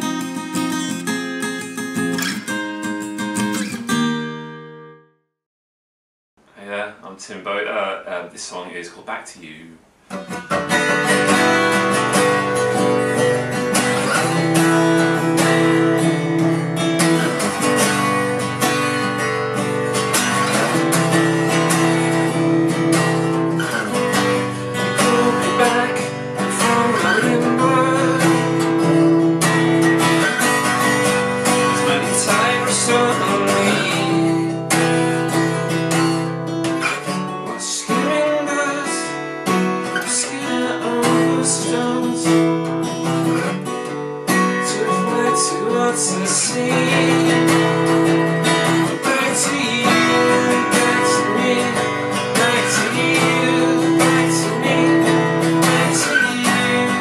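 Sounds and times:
acoustic guitar strumming: 0.0s - 5.1s, 9.8s - 57.0s.

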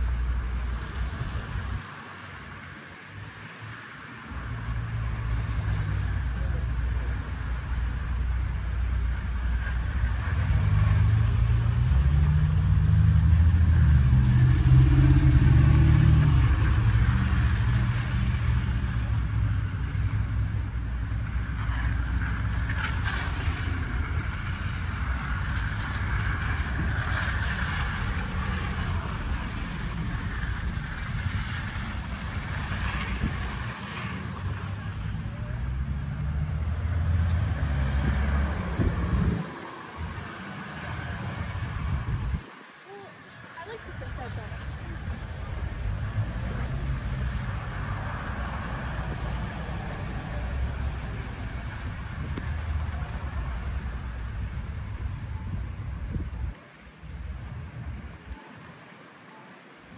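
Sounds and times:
road traffic rumble: 0.0s - 59.9s
vehicle passing close by: 9.9s - 19.6s, 21.4s - 42.5s.

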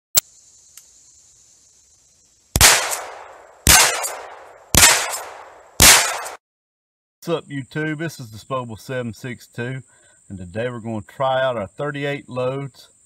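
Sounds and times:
rifle shots with echo: 2.6s - 6.4s.

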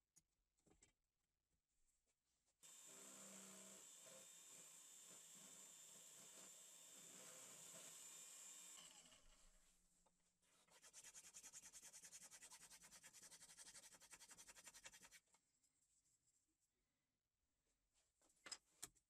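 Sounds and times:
drill press boring into wood: 2.6s - 9.4s.

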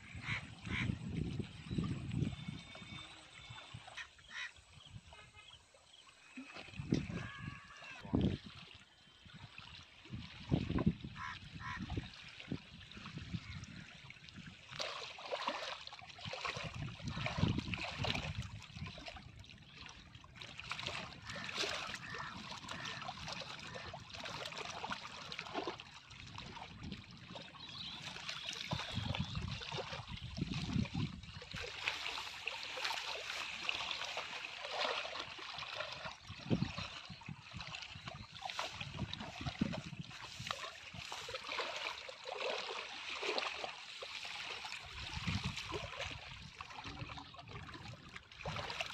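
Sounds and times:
wind rumbling on microphone: 0.0s - 3.8s, 6.7s - 8.6s, 10.0s - 14.7s, 16.3s - 24.3s, 26.2s - 32.4s, 36.0s - 41.5s, 44.8s - 48.9s
waves lapping against rocky bank: 5.8s - 48.9s.

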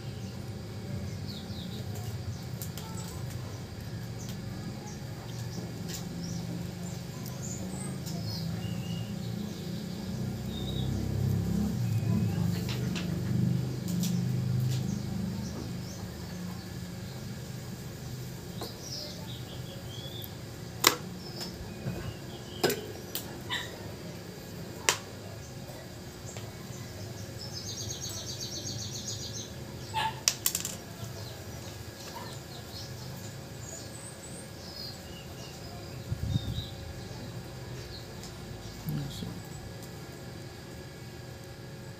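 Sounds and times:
birds chirping: 0.0s - 41.9s
steady low hum: 0.0s - 41.9s
small tools clicking and tapping: 30.2s - 30.9s.

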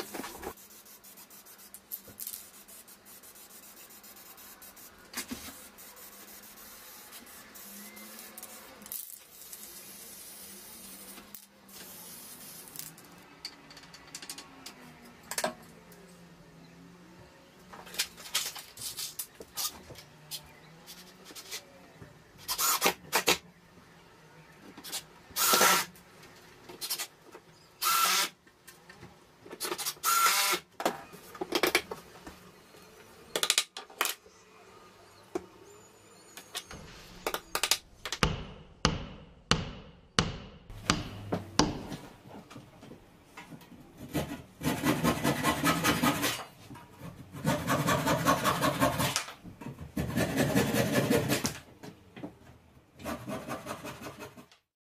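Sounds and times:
hand saw rasping: 47.4s - 49.2s, 50.0s - 51.5s.

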